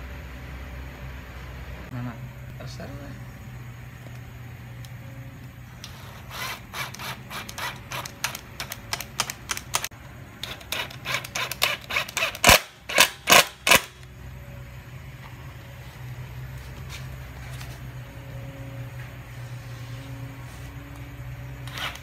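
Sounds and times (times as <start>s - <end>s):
power driver driving screws: 5.8s - 14.0s, 21.6s - 22.0s.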